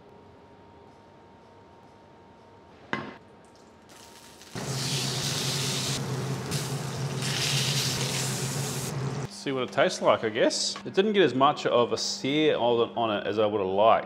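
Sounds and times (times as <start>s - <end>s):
steak sizzling in a skillet: 3.9s - 9.0s.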